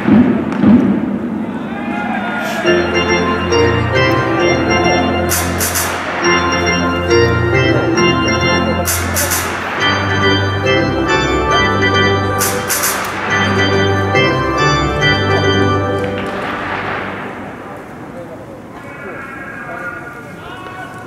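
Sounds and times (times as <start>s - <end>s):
organ playing held chords: 2.6s - 18.3s.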